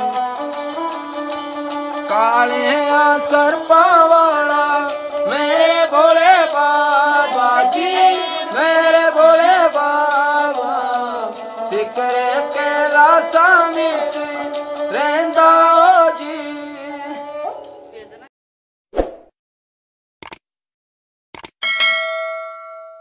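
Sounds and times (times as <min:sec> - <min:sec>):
bells jingling on bow: 0:00.0 - 0:18.3.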